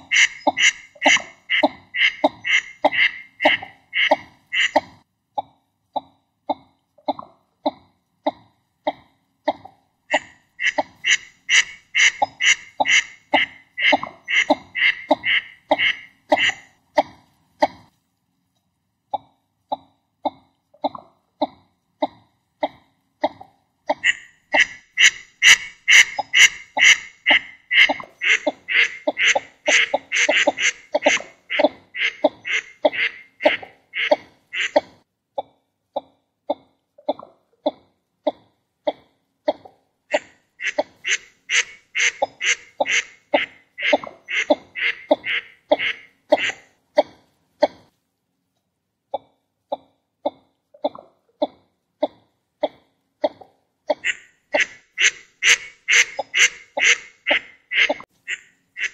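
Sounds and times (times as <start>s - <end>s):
duck calls: 0.0s - 4.9s, 10.1s - 16.7s, 24.0s - 34.8s, 40.1s - 46.7s, 53.9s - 58.9s.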